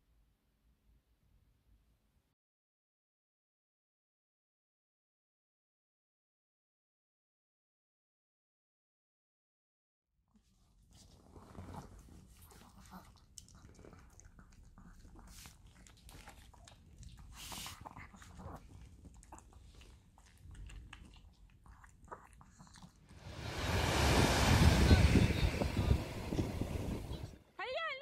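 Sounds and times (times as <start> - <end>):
surf: 23.2 - 27.4
wind: 23.2 - 27.4.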